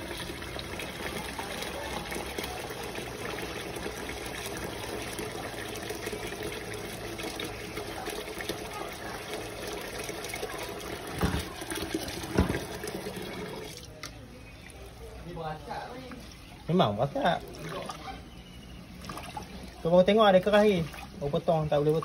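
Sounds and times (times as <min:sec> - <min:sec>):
water running: 0:00.0 - 0:14.0.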